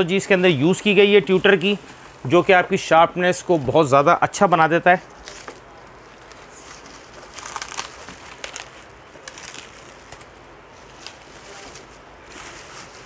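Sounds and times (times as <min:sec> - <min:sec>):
plastic bag crinkling: 0:05.2 - 0:13.0.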